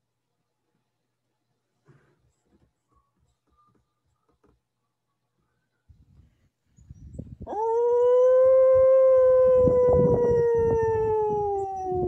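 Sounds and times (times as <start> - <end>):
man imitating wolf howl: 7.5 - 12.0.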